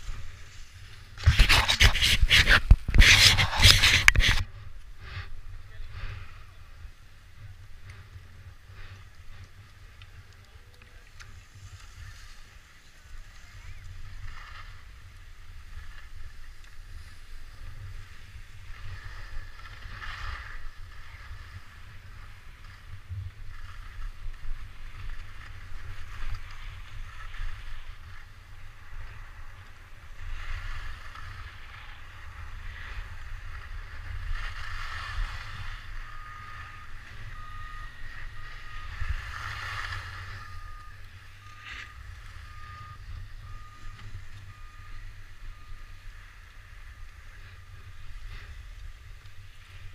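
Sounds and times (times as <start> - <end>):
wind buffeting microphone: 0.0 - 9.0
skis carving on snow: 0.0 - 49.9
short electronic beep: 36.0 - 39.1, 39.9 - 46.0.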